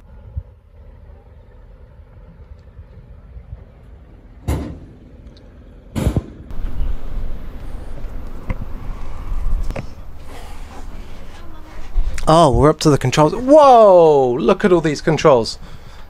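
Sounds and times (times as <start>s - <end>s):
wind rumbling on microphone: 6.5s - 12.8s.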